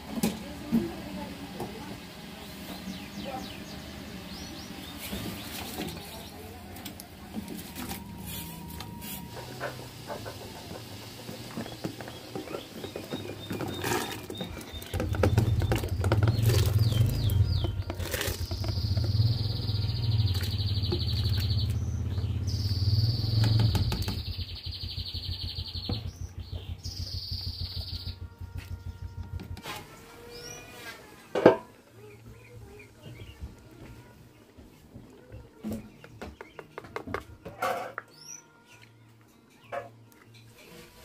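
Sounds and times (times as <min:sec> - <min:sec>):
birds chirping: 0:01.0 - 0:40.8
utensils scraping a metal pot: 0:12.5 - 0:14.7, 0:17.6 - 0:18.6
loud low hum: 0:14.9 - 0:30.7
high fast-pulsing trill: 0:22.8 - 0:30.4.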